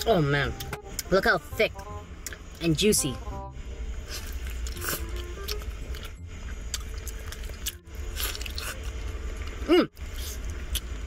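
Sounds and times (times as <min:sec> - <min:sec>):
steady low hum: 0:00.0 - 0:11.0
wet chewing and tearing meat: 0:04.2 - 0:09.0.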